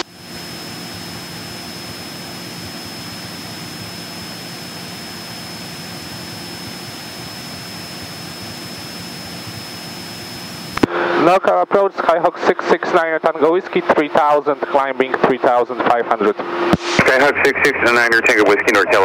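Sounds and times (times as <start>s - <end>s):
propeller plane engine drone: 0.0s - 19.0s
thin high whine: 15.8s - 19.0s.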